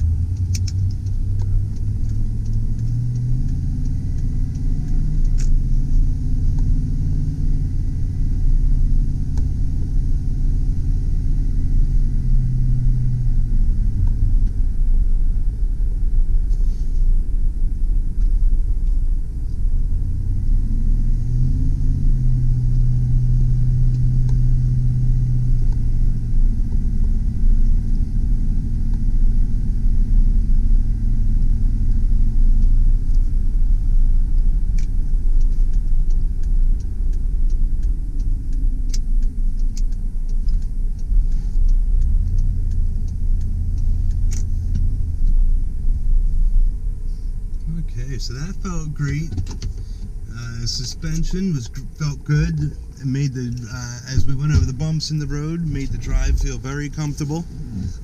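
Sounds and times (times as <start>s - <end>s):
low road rumble: 0.0s - 58.0s
truck engine running: 0.0s - 58.0s.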